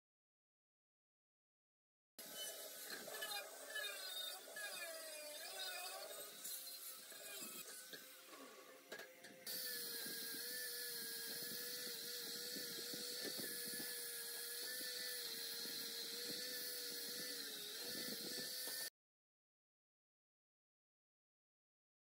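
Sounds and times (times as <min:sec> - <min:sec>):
angle grinder sanding steel: 0:02.2 - 0:08.8, 0:09.5 - 0:18.9.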